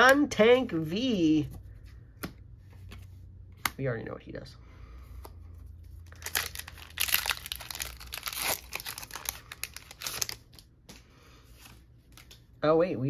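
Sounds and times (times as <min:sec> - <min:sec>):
foil wrapper crinkling and tearing: 0:06.0 - 0:10.7.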